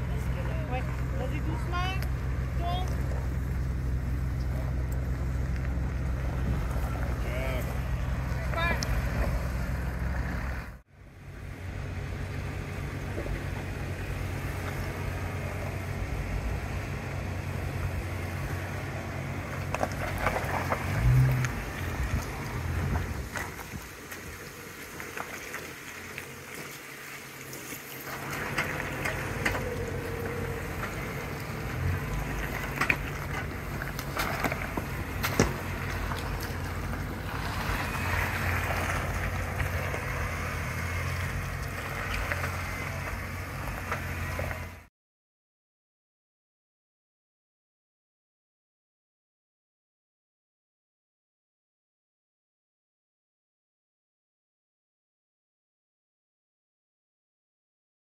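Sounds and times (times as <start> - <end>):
off-road vehicle engine at low revs: 0.0 - 44.9.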